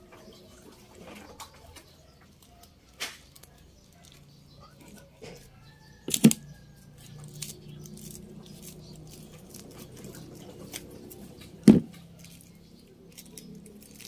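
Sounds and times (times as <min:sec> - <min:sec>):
plastic scratching and crinkling: 0:00.1 - 0:14.0
sharp knocks: 0:11.6 - 0:12.0.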